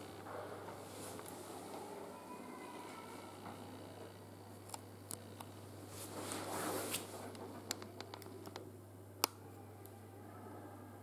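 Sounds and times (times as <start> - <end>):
steady low hum: 0.0 - 11.0
soft rustle: 5.9 - 7.6.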